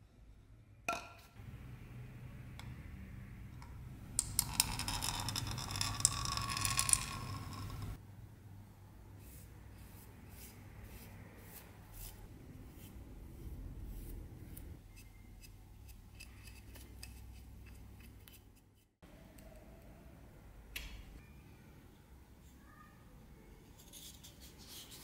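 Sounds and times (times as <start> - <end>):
paintbrush bristle strokes: 9.2 - 14.8.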